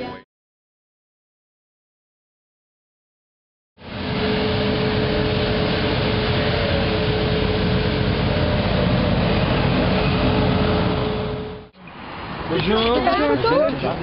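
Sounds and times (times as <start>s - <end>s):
steady whine: 3.8s - 11.7s
street sweeper engine rumble: 3.8s - 14.0s.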